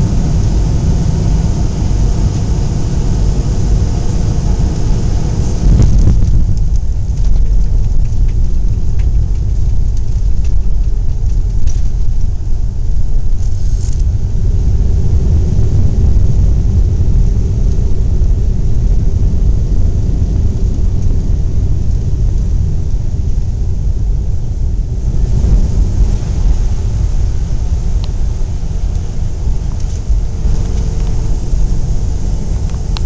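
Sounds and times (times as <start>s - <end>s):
airplane cabin low rumble: 0.0s - 33.0s
hiss: 13.4s - 14.0s.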